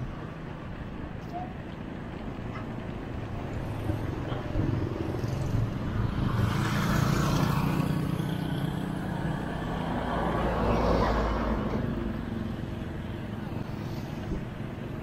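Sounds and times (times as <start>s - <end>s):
road and wind noise: 0.0s - 15.0s.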